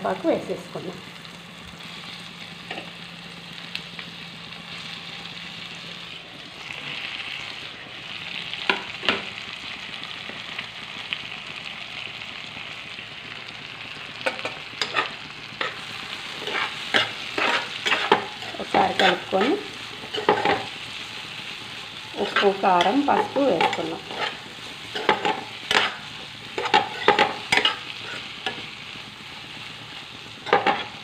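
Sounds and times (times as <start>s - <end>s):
food sizzling in hot oil: 0.0s - 31.0s
spatula scraping pan: 14.2s - 20.8s, 22.2s - 28.7s.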